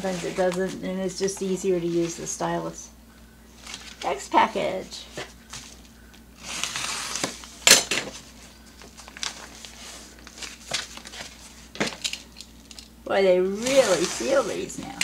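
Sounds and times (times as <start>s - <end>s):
package rustling and crinkling: 3.6s - 4.2s, 5.1s - 15.0s.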